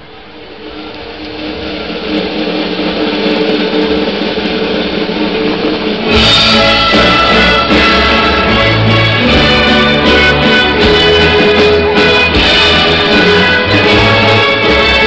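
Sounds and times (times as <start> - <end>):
symphony orchestra with guitars: 0.7 - 15.0
low bass notes: 6.1 - 15.0.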